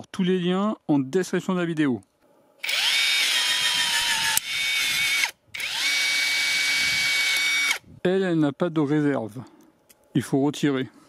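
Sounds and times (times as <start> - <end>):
cordless rivet gun motor whining: 2.6 - 7.8.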